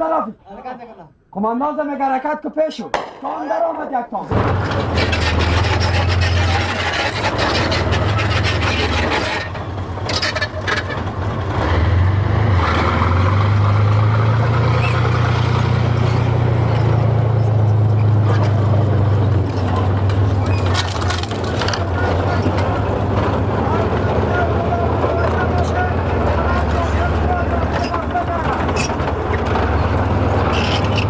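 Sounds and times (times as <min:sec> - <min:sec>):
tank tracks clattering: 0:04.3 - 0:11.6, 0:13.9 - 0:31.0
tank diesel engine drone: 0:04.3 - 0:31.0.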